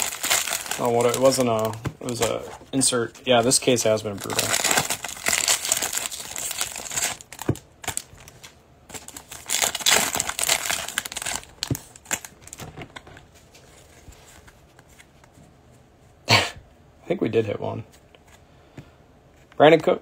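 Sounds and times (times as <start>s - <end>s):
foil wrapper crinkling: 0.0s - 2.4s, 3.3s - 13.0s.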